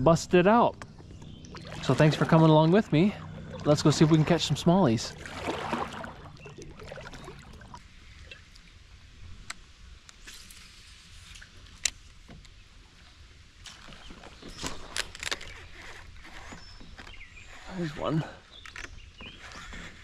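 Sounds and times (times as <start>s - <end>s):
faint water sounds: 0.0s - 11.8s.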